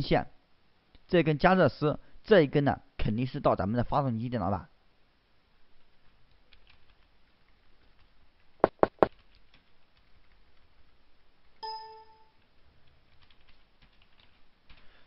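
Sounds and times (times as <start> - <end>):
keyboard key clicks: 8.6 - 9.7.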